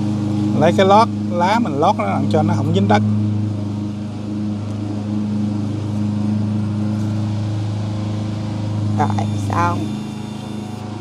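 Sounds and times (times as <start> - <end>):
lawn mower engine running: 0.0 - 11.0.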